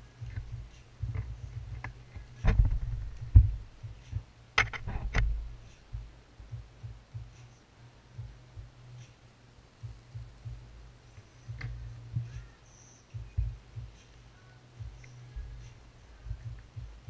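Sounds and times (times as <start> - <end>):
handling thumps and rubbing: 0.0 - 7.6, 11.2 - 12.5.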